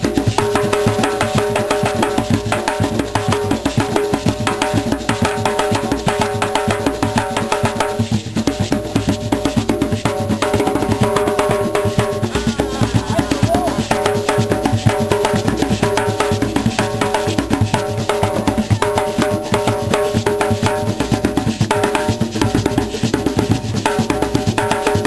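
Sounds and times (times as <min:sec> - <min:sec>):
fast dense drumming: 0:00.0 - 0:25.0
steady held tones: 0:10.6 - 0:14.7.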